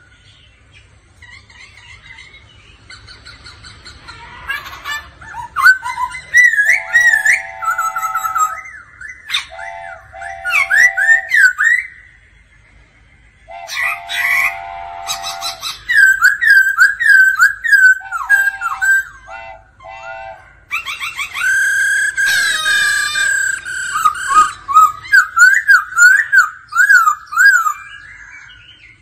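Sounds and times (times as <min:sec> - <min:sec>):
bird singing whistled notes: 0:05.3 - 0:12.5, 0:13.4 - 0:19.4, 0:20.7 - 0:29.0.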